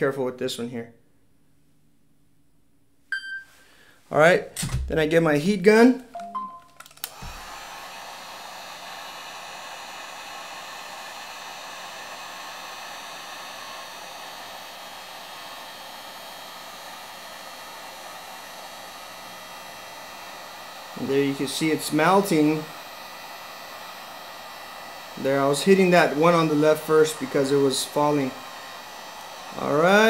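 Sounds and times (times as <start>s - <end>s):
heat gun blowing: 6.8s - 30.0s.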